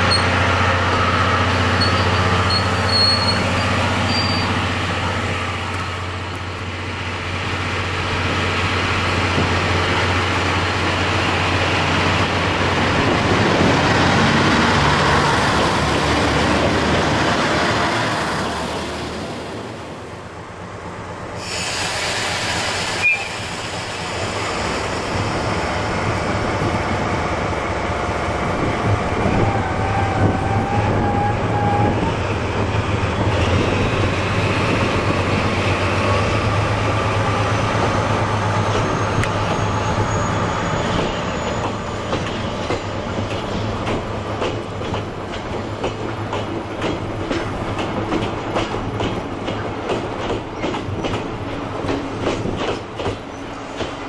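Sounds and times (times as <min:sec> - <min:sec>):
locomotive engine humming: 0:00.0 - 0:54.0
wheel squeal: 0:00.1 - 0:00.3, 0:01.8 - 0:04.6, 0:38.6 - 0:42.2.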